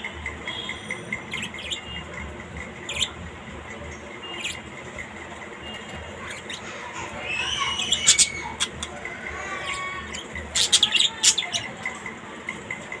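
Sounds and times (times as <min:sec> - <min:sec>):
parrot chirping and squeaking: 0:00.8 - 0:02.1, 0:02.7 - 0:03.2, 0:04.2 - 0:05.1, 0:05.7 - 0:12.0.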